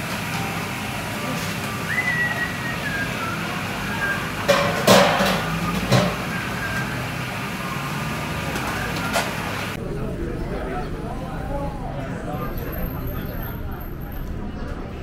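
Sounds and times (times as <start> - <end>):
faint music: 0.0 - 15.0
restaurant background noise: 0.0 - 15.0
sharp clatters of crockery: 4.5 - 6.2.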